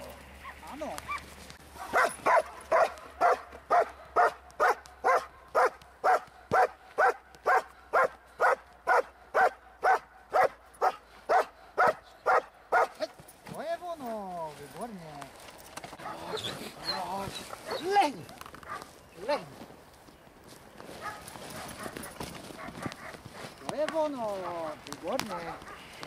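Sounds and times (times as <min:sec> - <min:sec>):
dog barking: 0:01.8 - 0:13.1, 0:16.0 - 0:16.4, 0:18.6 - 0:18.9, 0:21.0 - 0:23.2, 0:25.6 - 0:25.9.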